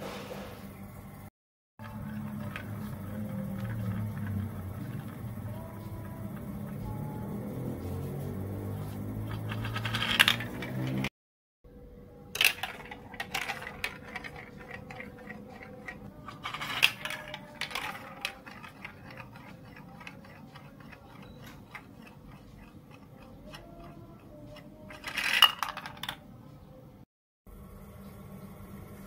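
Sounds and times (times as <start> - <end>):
plastic marble clacking on track: 1.8 - 6.7, 9.3 - 11.1, 12.3 - 26.3
marble circling funnel ticking: 1.8 - 7.6, 12.4 - 25.9
marble dropping with clatter: 9.3 - 11.1, 12.4 - 22.3, 24.6 - 26.3.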